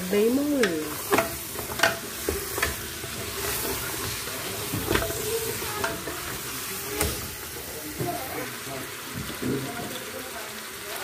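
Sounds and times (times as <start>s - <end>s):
meat sizzling in a pot: 0.0s - 11.0s
wooden spoon scraping a pot: 0.6s - 8.1s.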